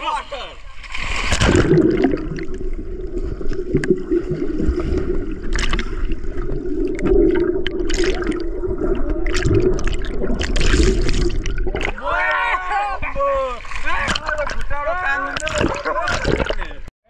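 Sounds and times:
underwater rumbling and bubbling: 0:01.1 - 0:12.1, 0:13.0 - 0:16.9
bubbly crackles: 0:01.2 - 0:12.0, 0:13.8 - 0:16.9
swimmers splashing into pool: 0:10.4 - 0:16.8.

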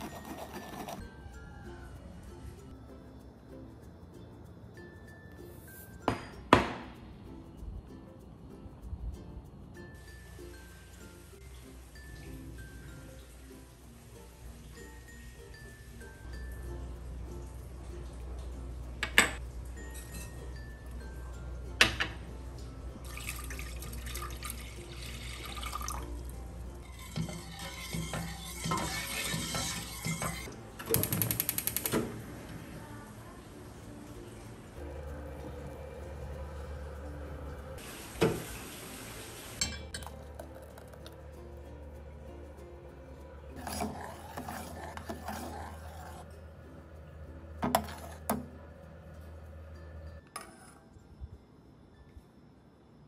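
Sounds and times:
water pouring into metal pot: 0:23.0 - 0:30.5
metal ladle scraping pot: 0:26.8 - 0:30.5, 0:43.5 - 0:46.3, 0:47.6 - 0:48.5
metal clinking on metal: 0:39.6 - 0:41.0.

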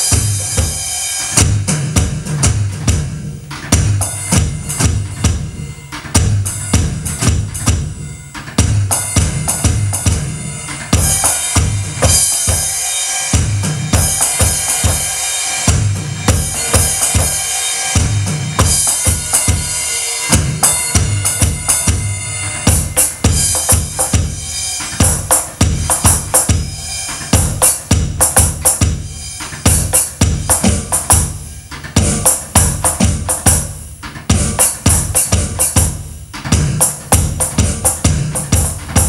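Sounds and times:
electronic drum kit groove: 0:00.0 - 0:39.0
cymbal crashes: 0:10.4 - 0:32.8.

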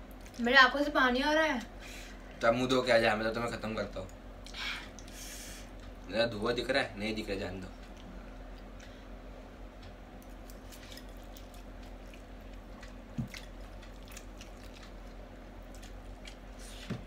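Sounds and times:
steady low hum: 0:00.0 - 0:17.0
chewing and slurping noodles: 0:10.4 - 0:16.9.

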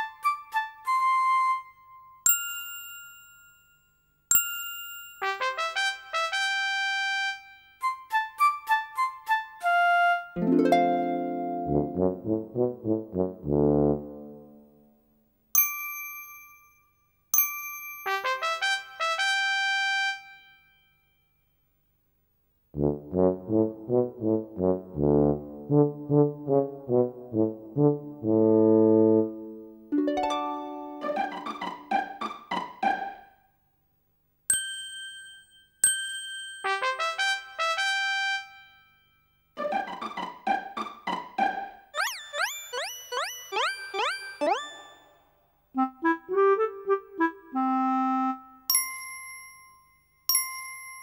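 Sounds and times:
bright bell-like dings: 0:02.3 - 0:05.2, 0:15.6 - 0:18.2, 0:34.5 - 0:36.8, 0:48.7 - 0:51.0
background tune: 0:10.4 - 0:14.6, 0:22.8 - 0:33.3, 0:42.0 - 0:48.6
children's show music: 0:30.1 - 0:33.3, 0:39.6 - 0:48.2
bright chime dings: 0:42.0 - 0:45.2.

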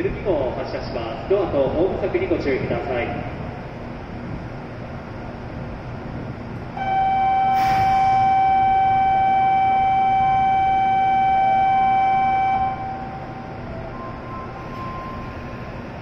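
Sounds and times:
electronic warning buzzer: 0:06.8 - 0:13.5
brief hiss: 0:07.5 - 0:08.3.

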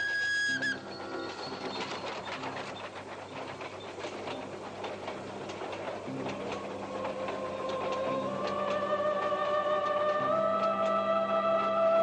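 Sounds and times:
mechanical clicking and clattering: 0:00.9 - 0:11.0
low film score music: 0:06.1 - 0:12.0.

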